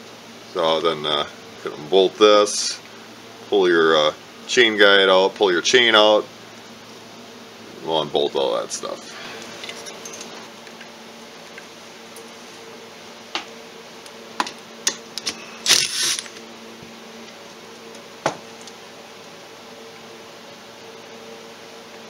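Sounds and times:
steady low hum: 0.0 - 22.0
cordless power driver spinning: 15.2 - 16.5.

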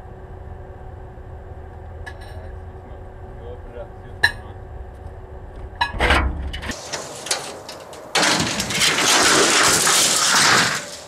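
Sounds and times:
microwave oven humming: 0.0 - 6.8.

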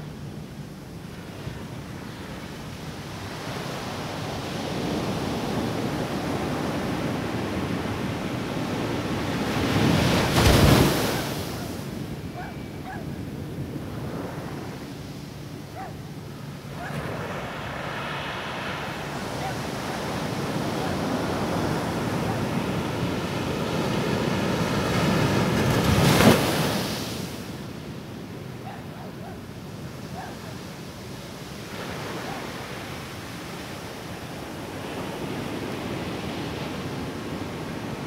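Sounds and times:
waves washing on sandy beach: 0.0 - 38.0
wave breaking at shore: 3.9 - 12.0, 16.7 - 27.6.

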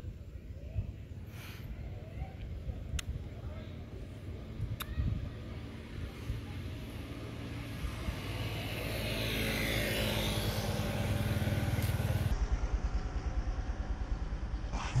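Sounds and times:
steady low hum: 0.0 - 15.0
motorcycle engine passing: 5.4 - 14.6.

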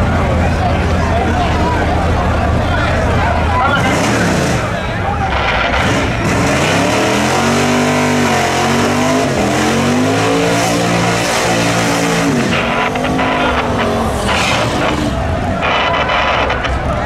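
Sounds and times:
car engine revving: 0.0 - 17.0
tyres squealing: 3.5 - 7.3, 10.3 - 17.0.

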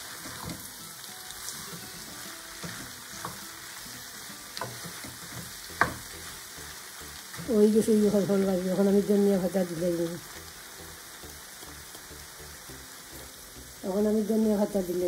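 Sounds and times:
fruit sizzling in oil: 0.0 - 15.0
spatula scraping and knocking pan: 4.6 - 6.3.

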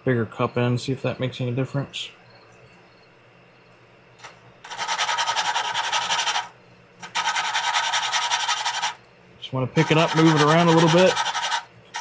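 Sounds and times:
valve grinding rasping scrape: 4.6 - 9.0, 9.8 - 12.0.

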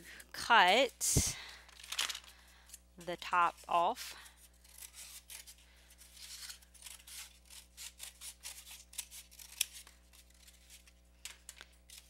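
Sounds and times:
scissors cutting cardboard: 4.4 - 12.0.

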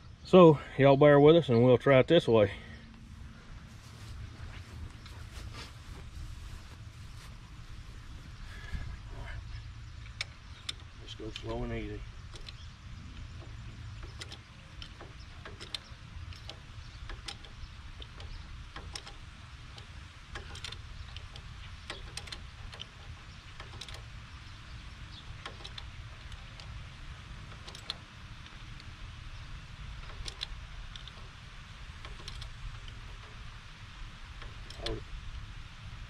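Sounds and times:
low rumble: 2.5 - 21.9
hydraulic jack clicks and knocks: 12.3 - 24.1, 25.1 - 26.8, 27.4 - 28.9, 30.0 - 33.5, 34.4 - 35.0.

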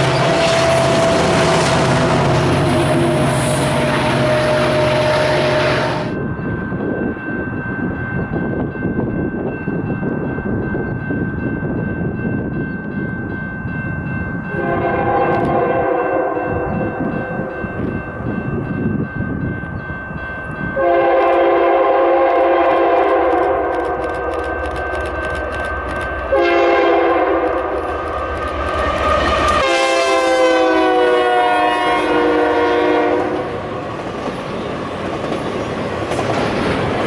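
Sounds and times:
locomotive chord horn: 0.0 - 6.2, 14.5 - 16.6, 20.8 - 24.0, 26.3 - 27.8, 28.8 - 33.6
diesel locomotive rumbling: 0.0 - 37.0
distant freight train rumble: 0.0 - 37.0.

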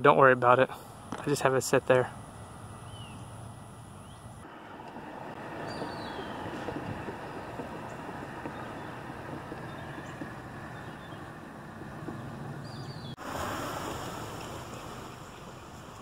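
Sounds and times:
road traffic rumble: 0.0 - 16.0
wind on microphone: 5.0 - 16.0.

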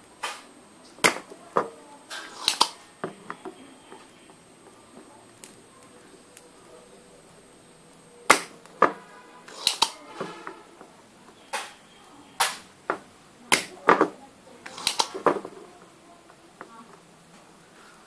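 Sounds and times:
desoldering pump snapping: 2.1 - 2.8, 8.3 - 11.8, 12.4 - 15.4.

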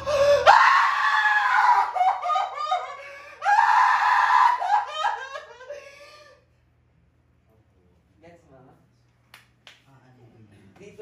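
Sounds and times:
woman wailing and sobbing: 0.0 - 6.5.

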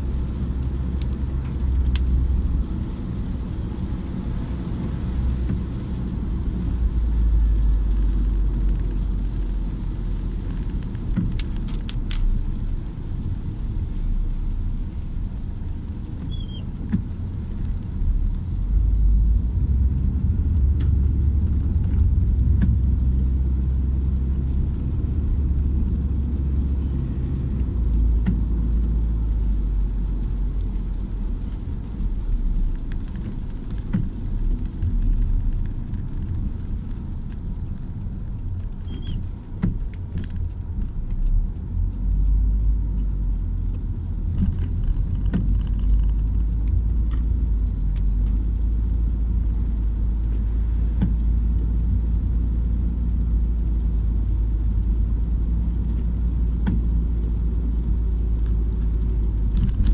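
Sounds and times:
car engine and tyres rumbling: 0.0 - 59.9.

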